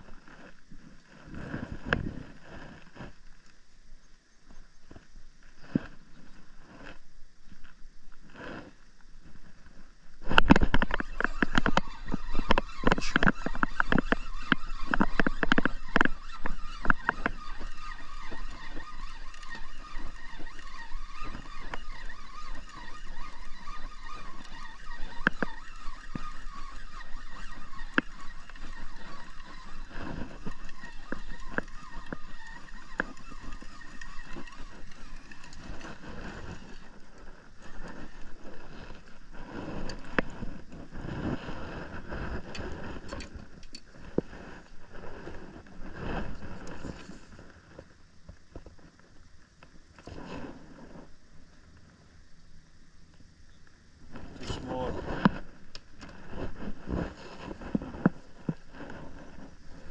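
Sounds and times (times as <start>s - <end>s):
droning hum: 0.0s - 59.9s
fishing reel clicking: 10.4s - 39.1s.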